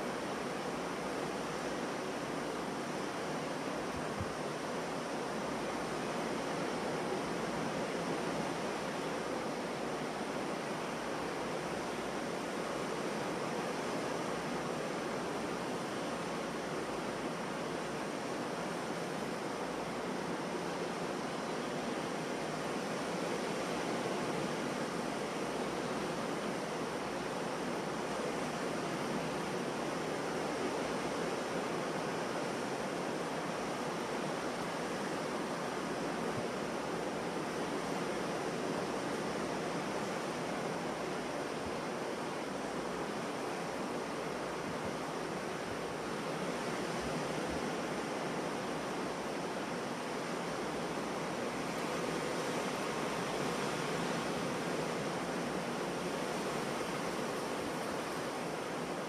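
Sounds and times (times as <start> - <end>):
ocean surf breaking: 33.9 - 59.0.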